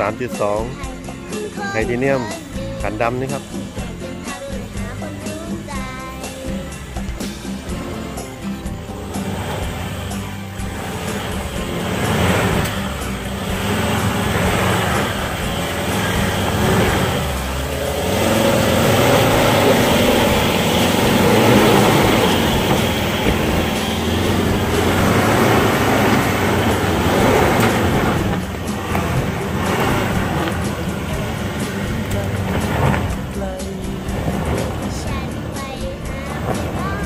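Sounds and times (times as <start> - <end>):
diesel engine working under load: 0.0 - 37.0.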